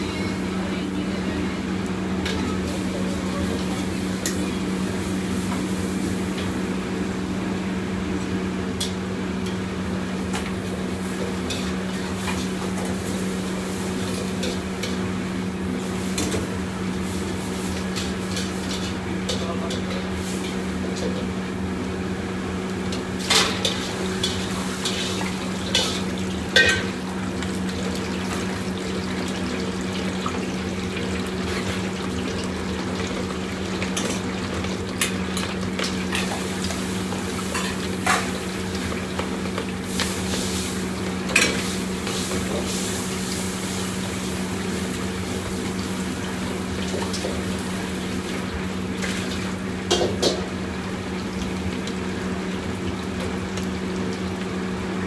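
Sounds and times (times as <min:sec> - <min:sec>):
metal ladles and pots clanking: 0:23.3 - 0:27.0.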